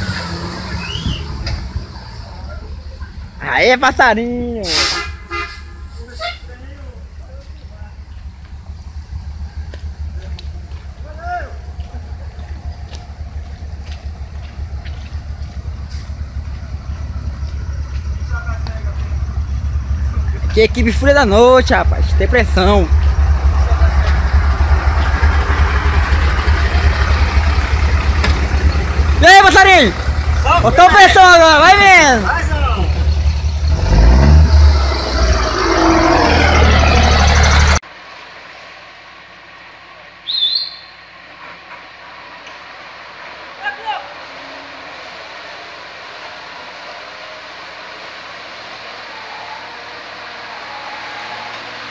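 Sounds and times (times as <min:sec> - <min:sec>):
outdoor background: 0:00.0 - 0:51.9
truck diesel engines rumbling: 0:00.0 - 0:51.9
bird whistled call: 0:00.7 - 0:01.4, 0:40.2 - 0:41.0.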